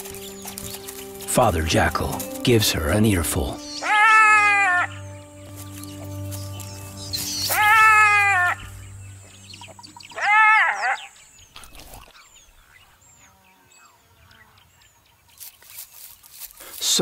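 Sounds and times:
faint high bird chirps: 3.6 - 15.9
jackal wailing yelp: 3.8 - 5.0, 7.2 - 8.7, 10.1 - 11.1.

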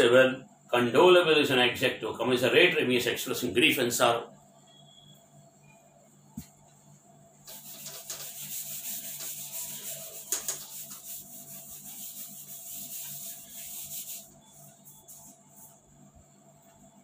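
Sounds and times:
duster scrubbing whiteboard: 7.5 - 15.9.

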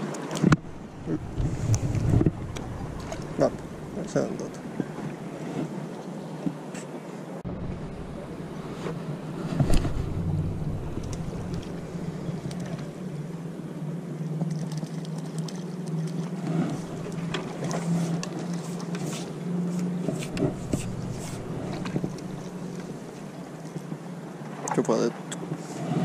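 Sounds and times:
water lapping against rocks: 0.0 - 5.9, 7.4 - 13.5, 14.1 - 26.0
boat engine drone: 0.4 - 5.4, 7.4 - 24.7
small splashes and clicks: 14.2 - 25.5.

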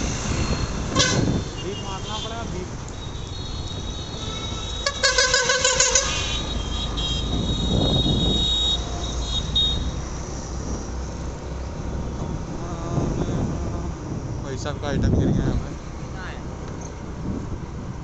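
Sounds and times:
vehicle horn beeping: 0.4 - 10.0.

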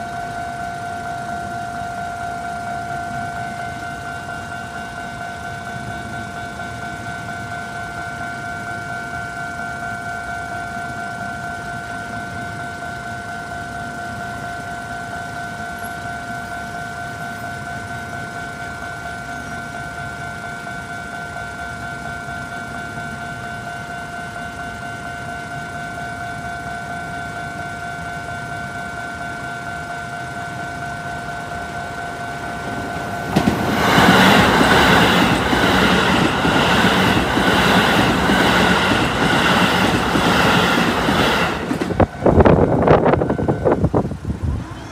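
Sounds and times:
train passing: 0.0 - 44.9
level crossing bell ringing: 20.6 - 43.7
train wheels clattering: 29.2 - 44.0.

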